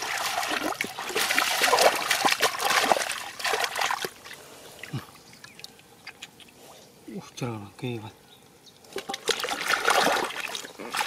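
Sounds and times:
small water drips: 0.0s - 6.6s, 8.8s - 11.0s
splashing in muddy water: 0.0s - 6.6s, 8.9s - 11.0s.

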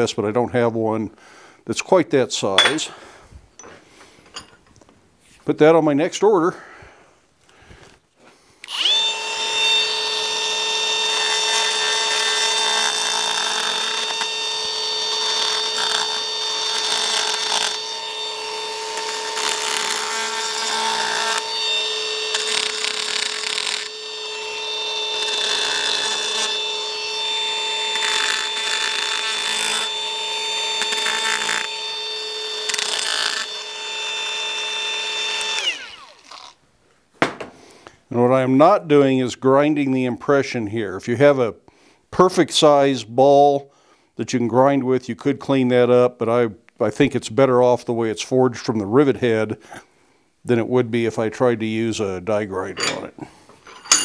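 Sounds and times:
die grinder whining: 8.6s - 36.6s
grinding bit rasping on steel: 52.8s - 54.0s.

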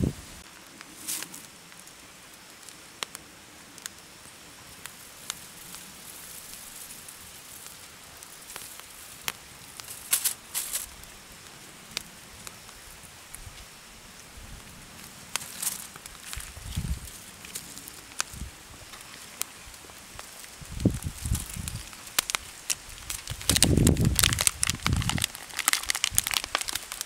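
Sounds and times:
faint steady hiss: 0.0s - 27.0s
wood fire crackling: 0.0s - 27.0s.

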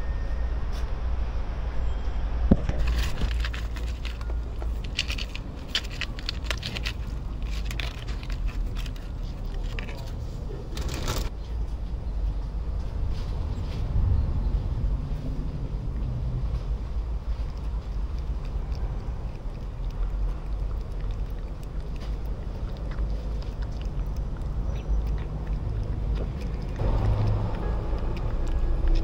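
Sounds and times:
low steady rumble: 0.0s - 29.0s
utensil scraping cat food: 2.7s - 11.3s, 16.6s - 29.0s
packaging handled: 2.8s - 10.0s.

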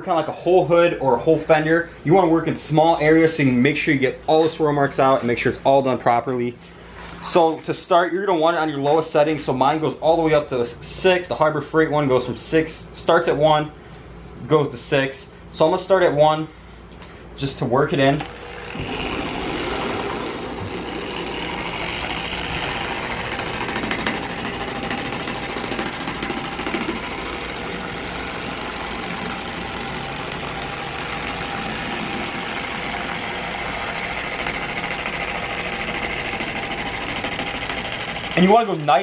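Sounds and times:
dual-action polisher running: 18.2s - 39.0s.

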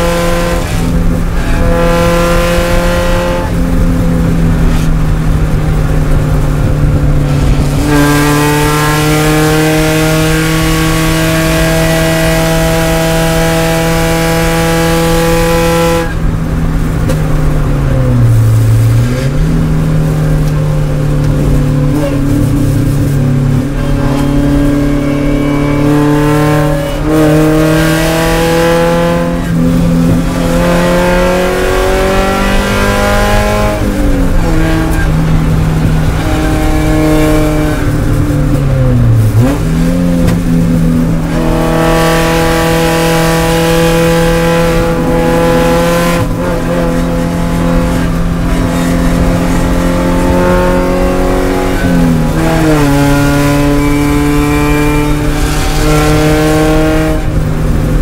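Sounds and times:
race car engine at high revs: 0.0s - 58.0s.

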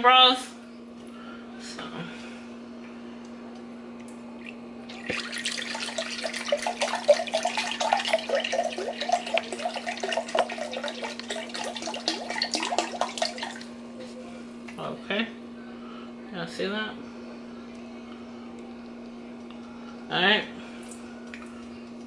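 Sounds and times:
broth pouring into a glass cup: 4.9s - 13.7s.

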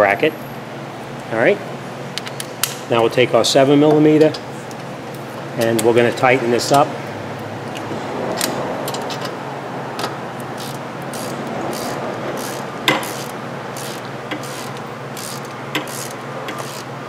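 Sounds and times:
steady low hum: 0.0s - 17.0s
ratchet wrench clicking: 10.4s - 16.9s.

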